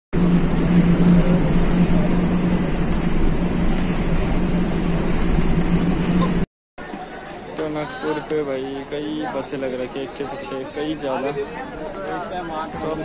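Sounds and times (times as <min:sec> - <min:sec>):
bus engine droning: 0:00.1 - 0:06.5
road noise: 0:00.1 - 0:12.6.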